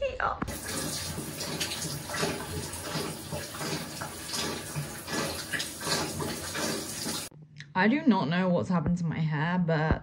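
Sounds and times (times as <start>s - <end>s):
shower spraying into bathtub: 0.5s - 7.3s.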